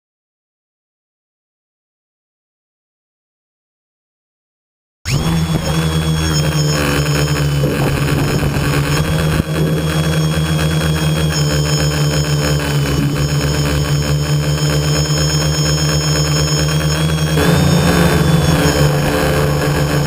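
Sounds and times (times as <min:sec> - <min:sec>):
drone motors and propellers whining: 0:05.1 - 0:20.0.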